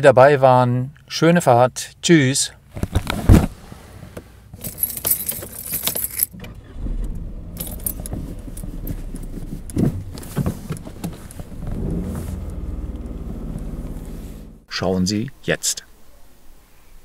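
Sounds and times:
car engine starting and idling: 3.5s - 14.7s
car keys jangling: 4.6s - 14.1s.

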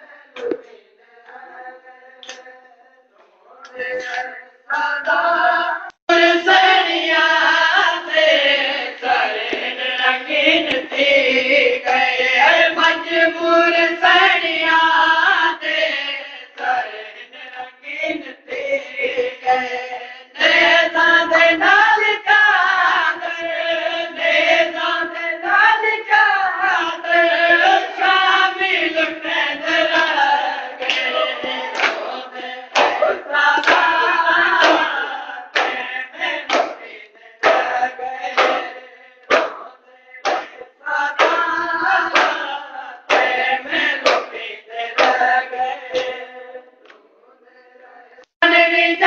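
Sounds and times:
men chanting in chorus: 0.0s - 49.0s
lead voice chanting: 29.4s - 46.2s
rhythmic chest-beating strikes: 29.6s - 46.2s.

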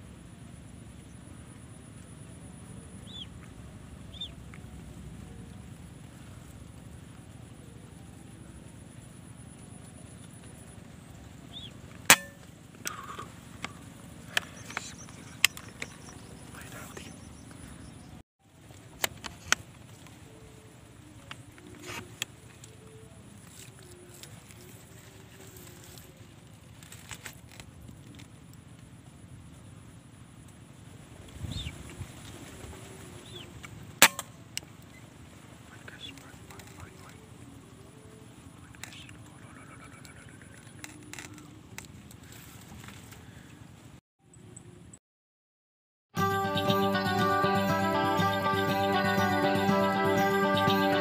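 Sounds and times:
faint clicks: 38.6s - 43.2s.

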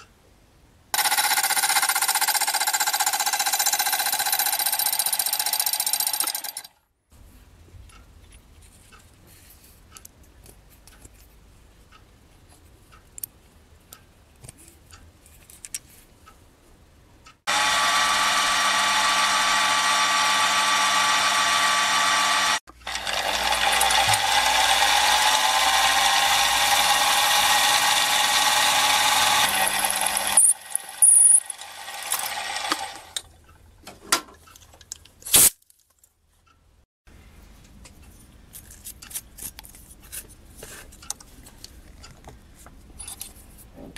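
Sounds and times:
quiet metal cutting sounds: 17.3s - 33.4s
milling machine whine: 17.5s - 33.2s.

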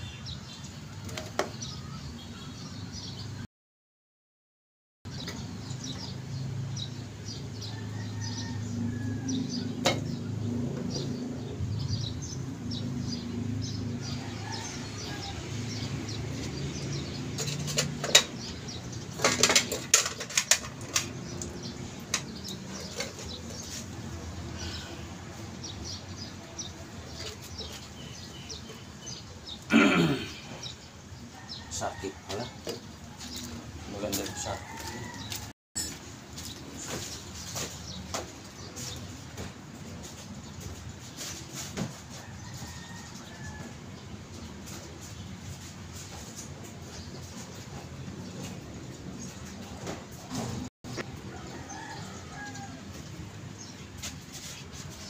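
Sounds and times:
small birds chirping: 0.0s - 3.4s, 5.1s - 35.5s, 36.4s - 55.0s.

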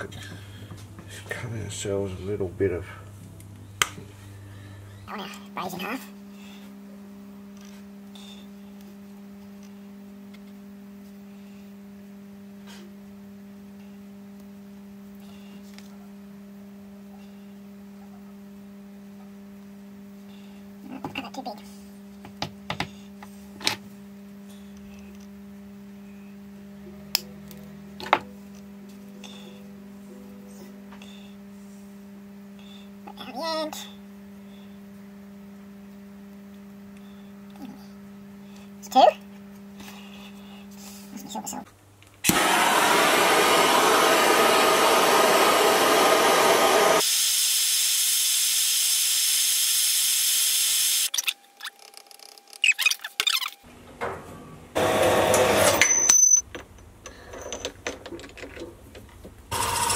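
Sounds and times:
steady low hum: 0.0s - 18.0s
blowtorch flame hissing: 42.2s - 51.1s.

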